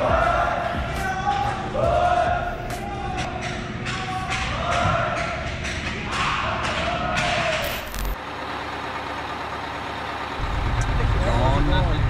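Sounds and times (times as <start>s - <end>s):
players shouting: 0.0s - 7.7s
low engine rumble: 7.8s - 12.0s
bus interior noise: 8.2s - 12.0s.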